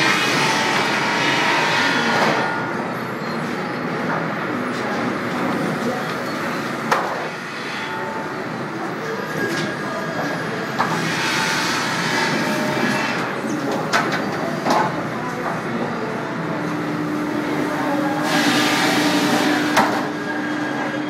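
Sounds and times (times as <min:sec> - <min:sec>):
sawmill machinery clattering: 0:00.0 - 0:08.1, 0:10.7 - 0:15.0, 0:17.8 - 0:21.0.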